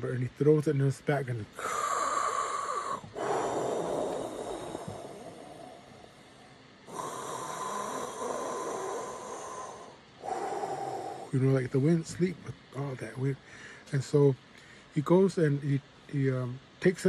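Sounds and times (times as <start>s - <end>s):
man blowing breathy whooshes: 1.6s - 11.4s.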